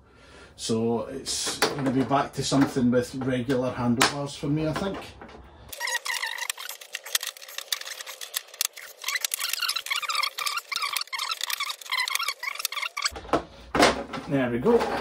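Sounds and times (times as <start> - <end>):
squeaky sped-up voice: 5.7 - 6.8, 8.8 - 13.1.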